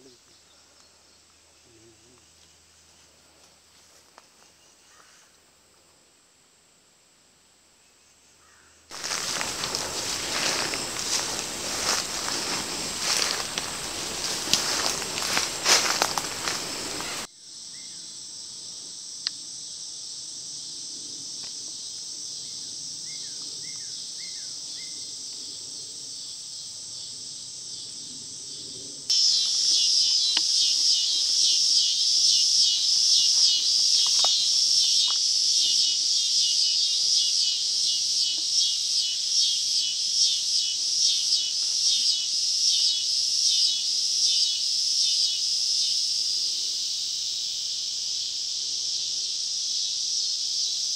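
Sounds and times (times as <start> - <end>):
insects buzzing: 7.7 - 50.9
pulsing insect chorus: 8.3 - 50.9
bird chirps: 29.1 - 45.4.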